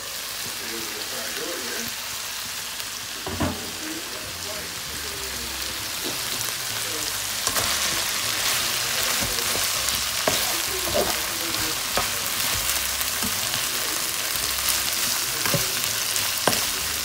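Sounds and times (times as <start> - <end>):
food sizzling in wok: 0.0 - 17.0
spatula scraping pan: 7.4 - 17.0.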